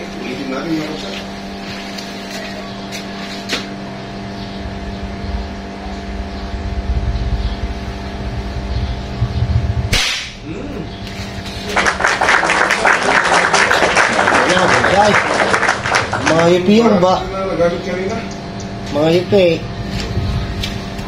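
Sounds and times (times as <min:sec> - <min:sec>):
steady motor hum: 0:00.0 - 0:21.0
low rumble: 0:05.0 - 0:11.6
sharp airgun shot: 0:09.8 - 0:10.5.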